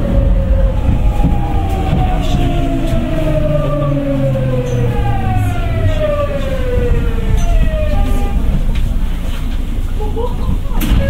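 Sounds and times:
train inverter whining: 0.0 - 11.0
wheels rumbling on rail: 0.0 - 11.0.

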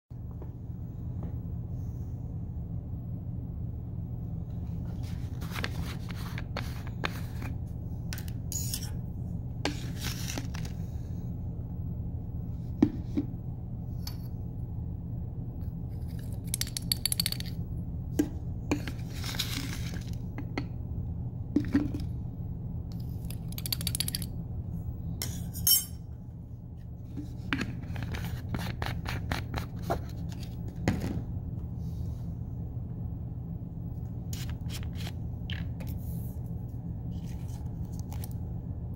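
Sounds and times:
steady low hum: 0.1 - 38.9
small glass clinks: 25.2 - 26.0.

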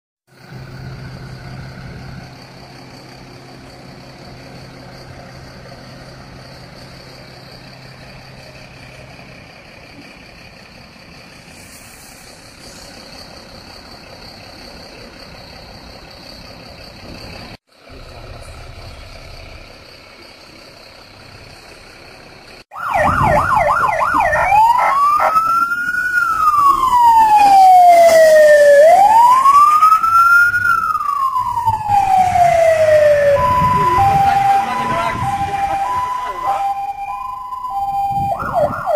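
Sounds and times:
diesel engines running: 0.3 - 38.9
fainter higher siren: 22.7 - 38.9
fire engine siren wailing: 22.7 - 38.9.

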